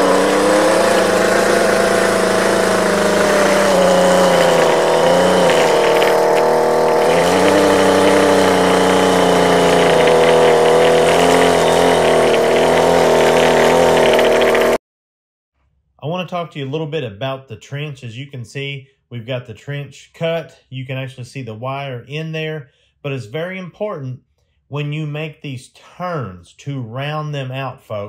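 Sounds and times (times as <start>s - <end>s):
weed eater engine cutting turf: 0.0s - 14.8s.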